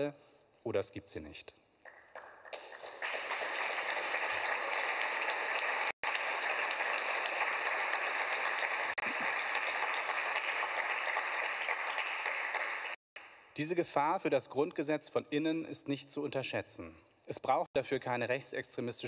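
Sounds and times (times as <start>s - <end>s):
audience applauding: 1.9s - 13.0s.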